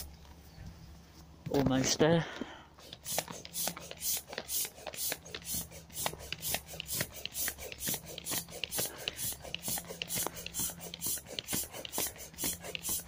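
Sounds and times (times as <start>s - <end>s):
air pump pulsing hiss: 2.8s - 13.0s.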